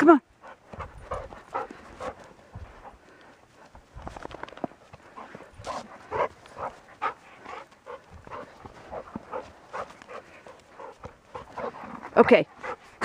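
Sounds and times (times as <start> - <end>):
dog making soft sounds: 0.4 - 3.0, 5.1 - 13.0.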